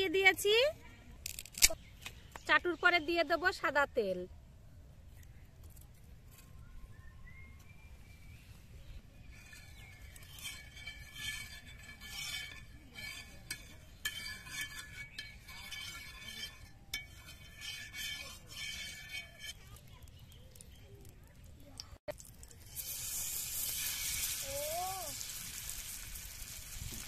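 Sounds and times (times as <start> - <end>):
metal spatula scraping griddle: 9.2 - 20.6, 22.6 - 27.0.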